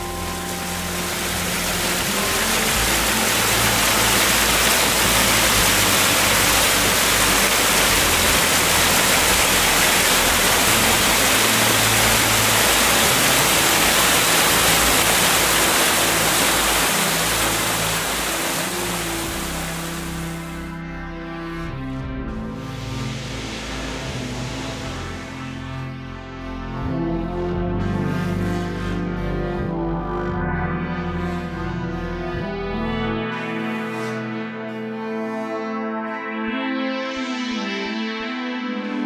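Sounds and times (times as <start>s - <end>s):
rushing stream and waterfall: 0.0s - 20.6s.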